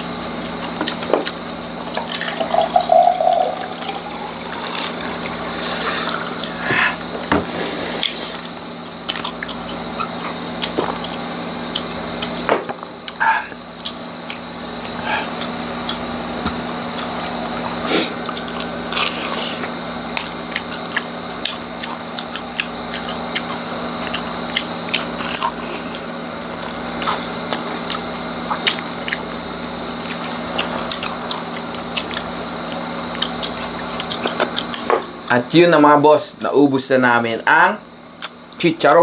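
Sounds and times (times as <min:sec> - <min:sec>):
crunching and chewing: 0:00.1 - 0:02.3, 0:07.6 - 0:35.3.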